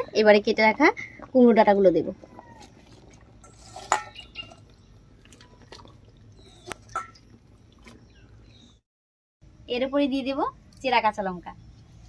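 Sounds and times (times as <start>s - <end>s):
small splashes and drips: 2.3s - 8.3s.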